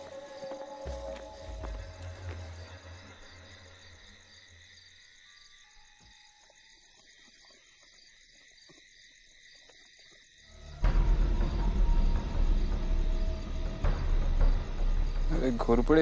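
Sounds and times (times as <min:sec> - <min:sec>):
low drone: 0:00.0 - 0:04.6, 0:10.6 - 0:16.0
crickets chirping: 0:00.0 - 0:16.0.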